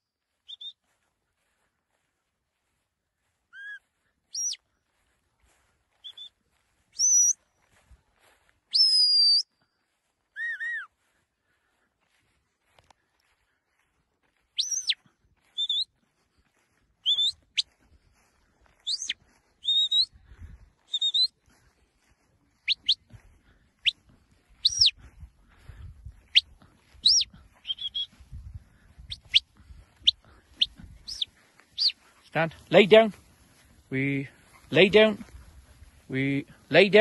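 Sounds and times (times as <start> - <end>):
shepherd's whistle commands: 0.5 - 0.8, 3.5 - 4.6, 7.0 - 7.4, 8.7 - 9.5, 10.3 - 10.9, 14.6 - 15.0, 17.0 - 17.7, 18.8 - 20.1, 20.9 - 21.3, 24.6 - 24.9, 27.0 - 28.1, 31.0 - 32.0.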